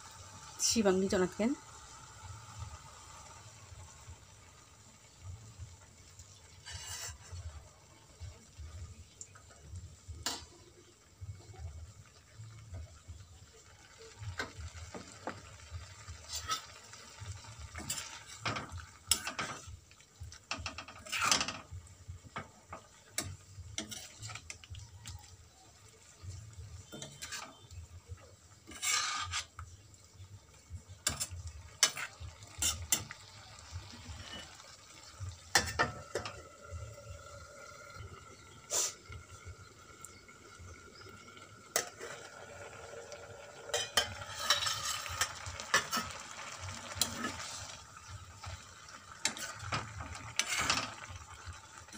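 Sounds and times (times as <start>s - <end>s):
utensil stirring wet greens: 6.4s - 7.6s, 16.0s - 34.8s, 43.6s - 51.9s
utensil scraping and knocking pan: 20.6s - 21.7s, 28.7s - 29.6s, 43.7s - 46.2s, 49.2s - 51.0s
water pouring: 30.6s - 51.9s.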